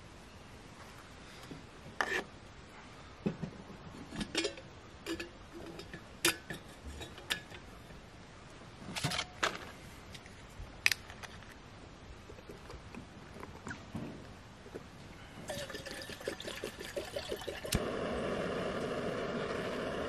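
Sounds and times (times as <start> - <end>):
metal cookware clinking: 4.1 - 7.6.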